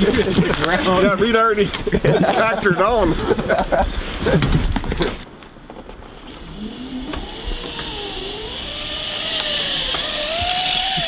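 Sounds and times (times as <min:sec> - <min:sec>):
hiss: 0:06.3 - 0:11.0
zip line trolley whirring: 0:06.3 - 0:11.0.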